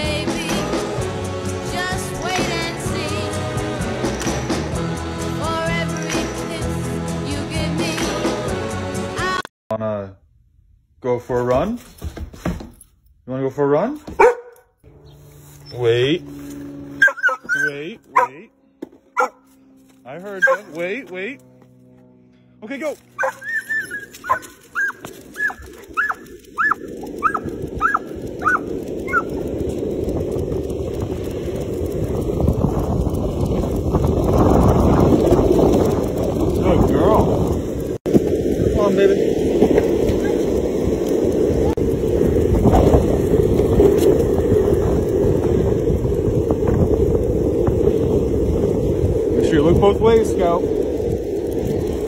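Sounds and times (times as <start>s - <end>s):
dog yipping: 14.2s - 14.6s, 17.0s - 18.4s, 19.2s - 19.4s, 20.4s - 20.8s, 23.2s - 29.4s, 40.1s - 40.5s
wind buffeting microphone: 23.2s - 52.0s.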